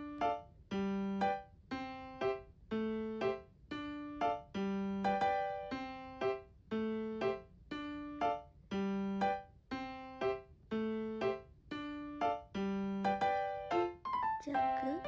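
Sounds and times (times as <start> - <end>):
keyboard music: 11.8 - 15.0.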